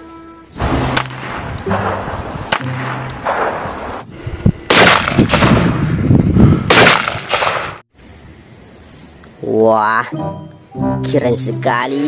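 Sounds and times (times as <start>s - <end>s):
gunshots: 0.6s - 4.0s, 4.7s - 5.7s, 6.7s - 7.8s
automatic weapon rapid fire: 4.7s - 5.7s.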